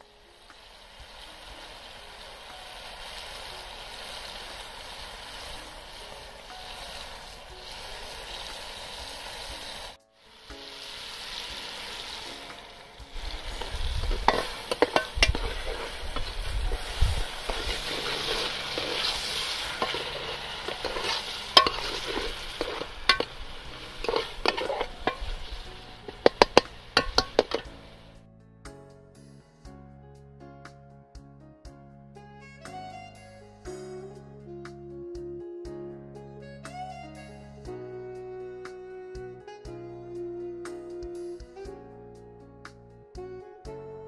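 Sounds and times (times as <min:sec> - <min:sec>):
food sizzling and bubbling in pot: 0:00.0 - 0:28.2
ladle clinking and scraping pot: 0:13.2 - 0:28.1.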